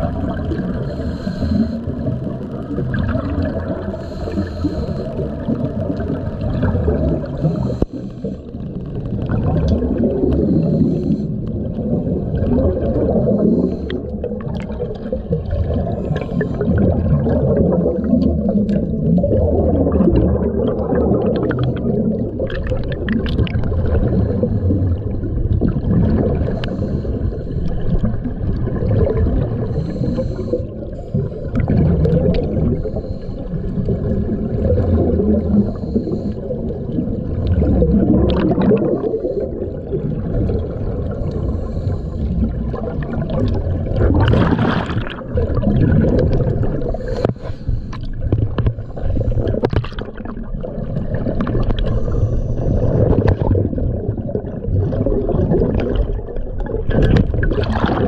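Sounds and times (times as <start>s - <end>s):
underwater air bubbles gurgling: 0.0s - 58.0s
regulator breathing: 0.7s - 2.6s, 3.8s - 5.6s, 7.2s - 8.9s, 10.3s - 12.0s, 13.2s - 14.5s, 26.5s - 28.0s, 29.6s - 31.6s, 32.5s - 33.9s, 35.6s - 36.7s, 41.0s - 42.8s, 46.7s - 49.7s, 51.7s - 53.0s.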